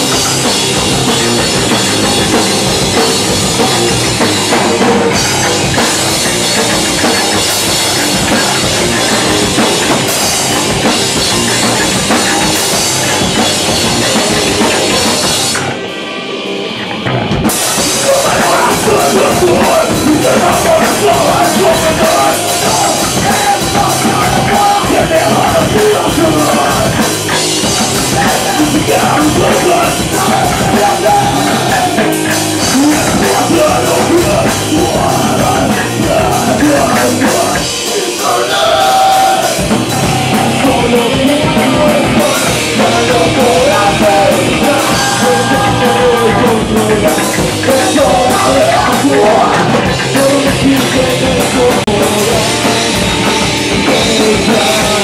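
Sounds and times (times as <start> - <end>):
electric bass: 0.0 - 15.9, 16.7 - 55.0
drum kit: 0.0 - 55.0
electric guitar: 0.0 - 55.0
man singing: 17.6 - 55.0.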